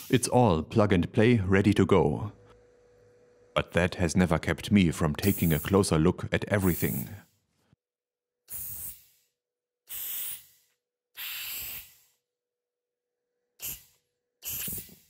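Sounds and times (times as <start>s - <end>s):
compressed air hissing blasts: 5.2s - 5.8s, 6.6s - 7.3s, 8.5s - 12.3s, 13.6s - 15.0s.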